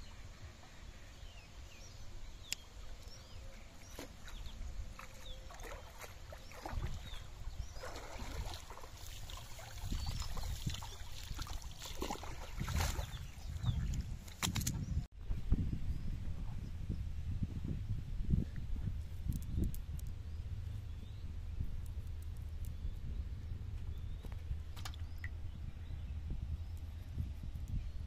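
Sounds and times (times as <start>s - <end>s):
small birds chirping: 0.0s - 14.2s
splashes of wading: 3.7s - 14.7s
water sloshing and dripping: 3.7s - 14.7s.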